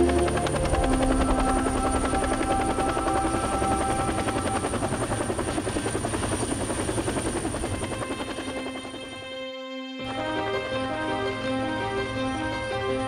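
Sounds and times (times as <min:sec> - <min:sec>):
helicopter rotor chopping: 0:00.0 - 0:09.4.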